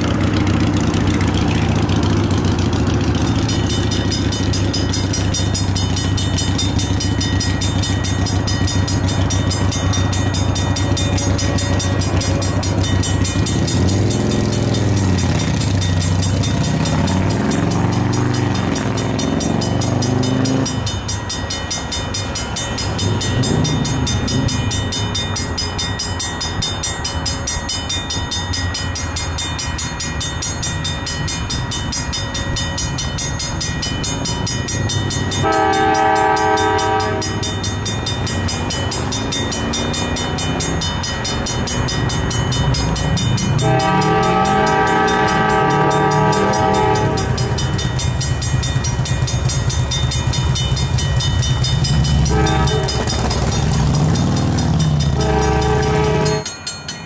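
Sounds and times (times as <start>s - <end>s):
train rumbling: 0.0s - 57.0s
train air horn blasts: 35.4s - 37.5s, 43.6s - 47.6s, 52.3s - 53.2s, 55.1s - 56.5s.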